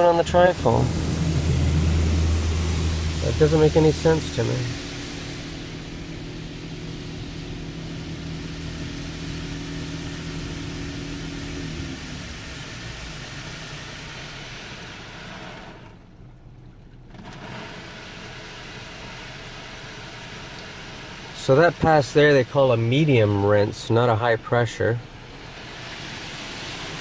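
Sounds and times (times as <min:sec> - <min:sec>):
low machine hum: 0:00.0 - 0:17.1
car wash water spray hissing: 0:00.0 - 0:27.0.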